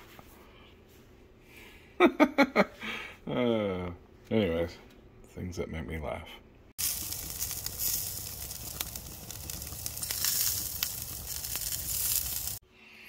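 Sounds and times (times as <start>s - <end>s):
burgers sizzling on grill: 6.8s - 12.6s.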